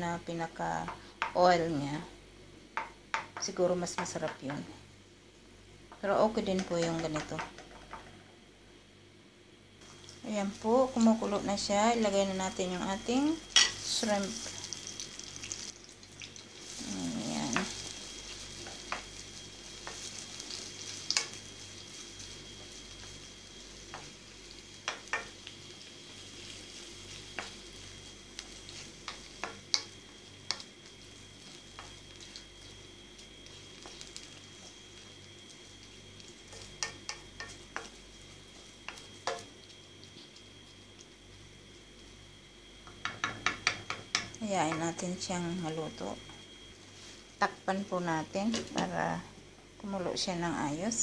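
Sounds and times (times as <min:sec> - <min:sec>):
shrimp sizzling in a wok: 0:00.2 - 0:01.8, 0:09.7 - 0:51.0
wooden spoon knocking pan: 0:24.8 - 0:25.4, 0:42.9 - 0:44.9.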